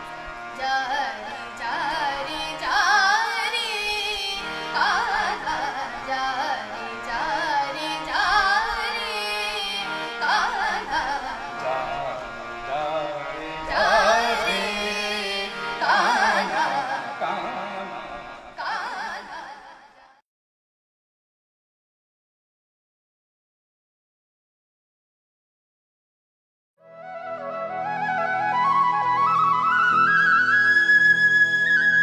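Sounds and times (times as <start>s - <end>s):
woman singing: 0.6s - 11.6s, 13.7s - 17.1s, 18.6s - 20.2s.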